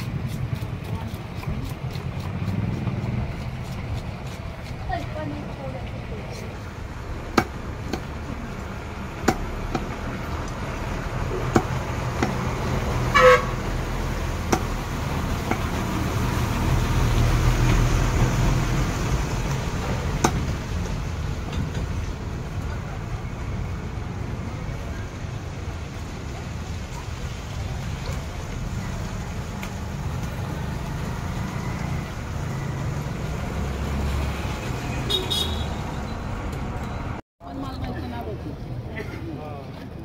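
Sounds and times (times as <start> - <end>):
street traffic rumble: 0.0 - 40.0
cleaver chopping on wooden block: 7.3 - 8.1, 9.2 - 10.0, 11.4 - 12.5, 14.4 - 14.7, 20.2 - 20.5
vehicle horn toot: 13.1 - 13.6, 35.0 - 35.8.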